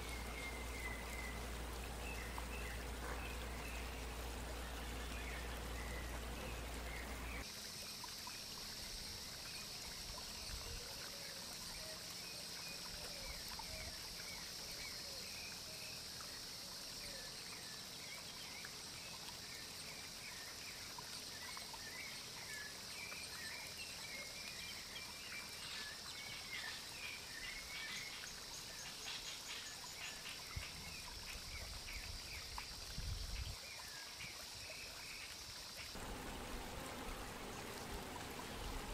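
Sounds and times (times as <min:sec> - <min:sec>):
small birds chirping: 0:00.0 - 0:07.4, 0:35.9 - 0:38.9
water trickling: 0:00.0 - 0:38.9.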